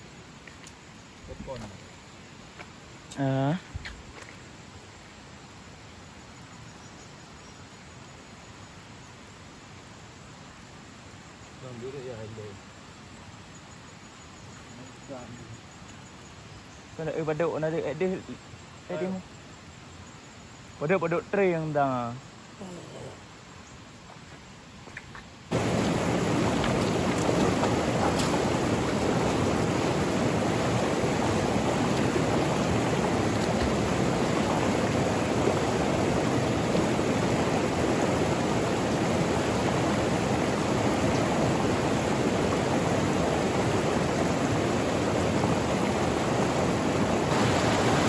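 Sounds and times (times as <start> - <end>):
river rapids rushing over boulders: 25.5 - 48.0.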